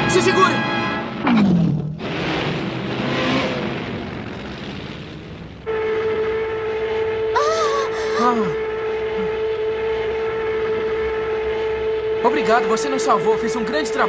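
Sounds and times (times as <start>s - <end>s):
horn-like drone: 0.0s - 1.4s, 5.6s - 14.0s.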